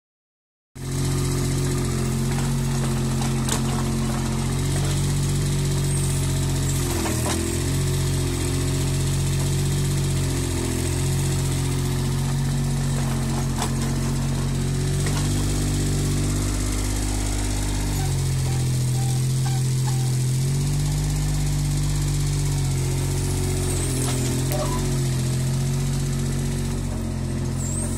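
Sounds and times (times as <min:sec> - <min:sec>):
excavator engine running: 0:00.8 - 0:27.9.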